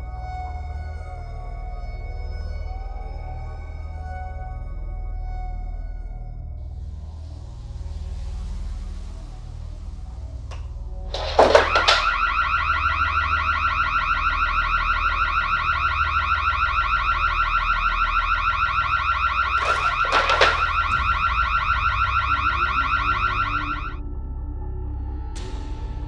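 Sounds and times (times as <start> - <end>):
electronic alarm beeping: 11.2 - 24.0.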